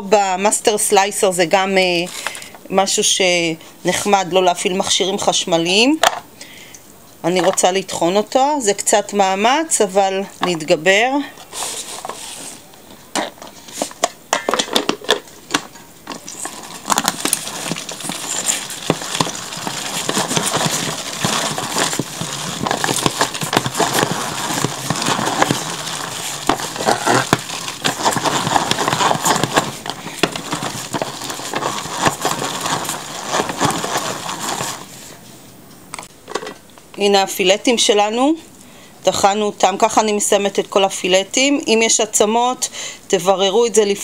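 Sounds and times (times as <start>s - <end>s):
hand food chopper clattering: 16.1s - 34.8s.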